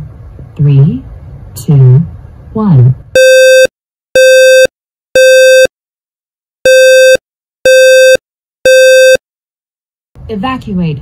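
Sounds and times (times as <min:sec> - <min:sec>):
smoke alarm buzzy beeps: 0:03.2 - 0:05.7, 0:06.7 - 0:09.2.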